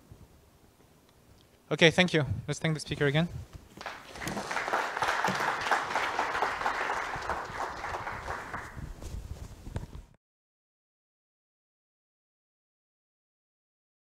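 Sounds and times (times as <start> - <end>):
audience applauding: 3.8 - 8.8.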